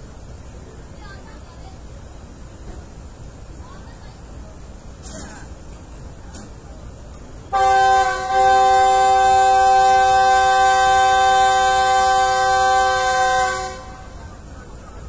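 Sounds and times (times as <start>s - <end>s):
locomotive air horn blast: 7.5s - 14.4s.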